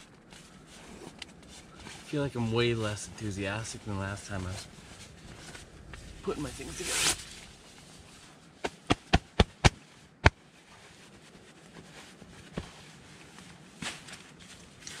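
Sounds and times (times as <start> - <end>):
camping pillow snapping: 8.6 - 10.4.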